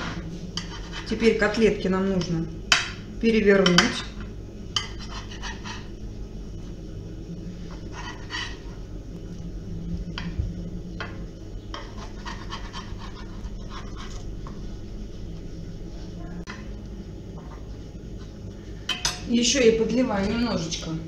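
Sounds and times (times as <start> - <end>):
steady low hum: 0.0 - 21.0
utensil scraping a metal tray: 4.8 - 5.9, 7.9 - 8.7.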